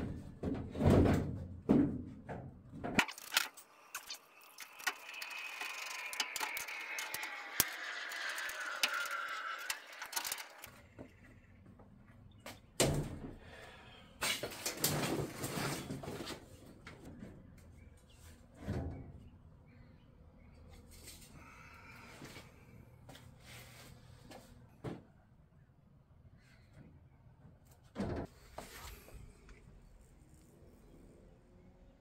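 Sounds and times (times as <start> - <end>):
metallic door hinge squeal: 4.5 - 10.8.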